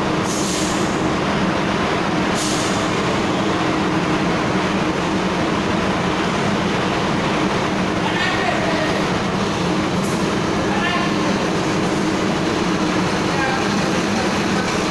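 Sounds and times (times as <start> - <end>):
truck diesel engine running: 0.0 - 14.9
short hisses: 2.3 - 2.9.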